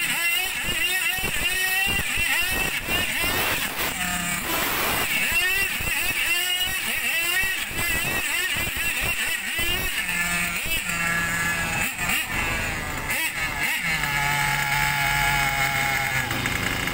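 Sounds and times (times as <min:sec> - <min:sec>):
toy car motor whining: 0:00.0 - 0:16.9
low engine note: 0:10.5 - 0:16.9.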